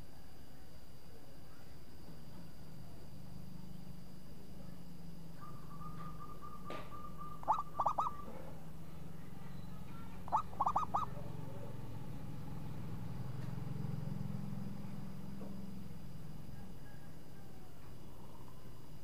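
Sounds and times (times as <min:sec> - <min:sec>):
steady low hum: 0:00.0 - 0:19.0
dove cooing: 0:05.4 - 0:08.6, 0:09.9 - 0:11.8.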